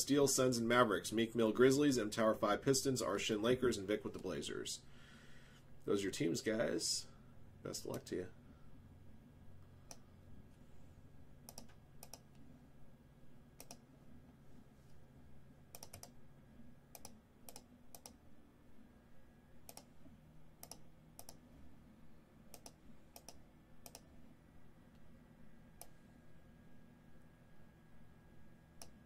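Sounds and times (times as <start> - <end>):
low room hum: 0.0 - 29.0
computer keyboard and mouse clicks: 11.5 - 12.4, 13.6 - 13.8, 15.7 - 16.2, 16.9 - 18.2, 19.6 - 19.9, 20.6 - 21.4, 22.5 - 24.1.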